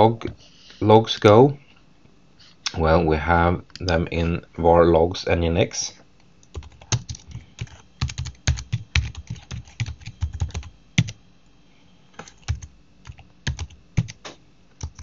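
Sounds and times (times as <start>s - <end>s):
computer keyboard typing: 6.4s - 11.2s, 12.2s - 15.0s.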